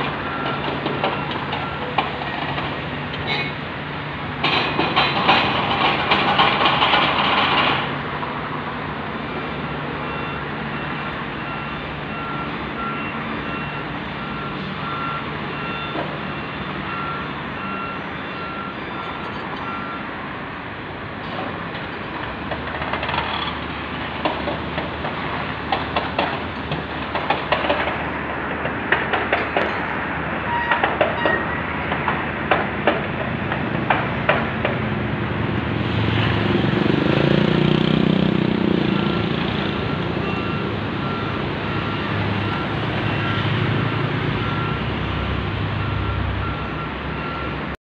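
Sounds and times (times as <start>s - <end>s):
heavy diesel engine running: 0.0s - 47.8s
metal clanks and knocks: 4.4s - 7.9s, 24.2s - 30.0s, 30.6s - 34.8s.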